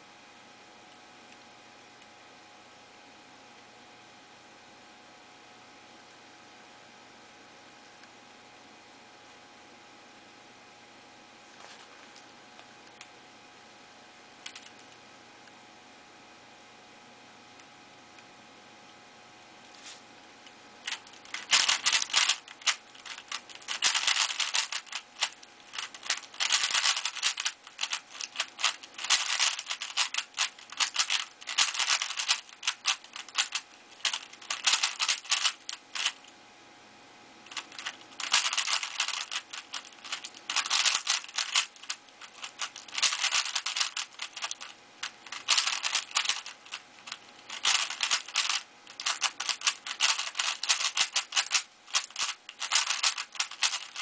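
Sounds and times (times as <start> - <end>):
puzzle cube clicking and rattling: 14.4 - 14.9, 20.8 - 36.3, 37.5 - 54.0.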